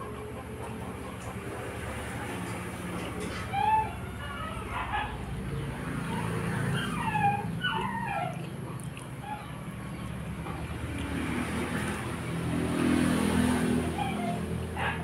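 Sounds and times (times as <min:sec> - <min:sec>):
vehicle engine: 0:00.0 - 0:15.0
dog whimpering: 0:03.0 - 0:05.2, 0:06.0 - 0:09.5, 0:13.8 - 0:15.0.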